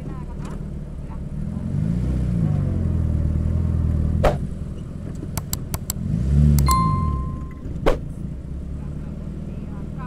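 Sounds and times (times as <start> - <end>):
van engine revving: 0.0 - 10.0
quick clicks: 5.4 - 6.0.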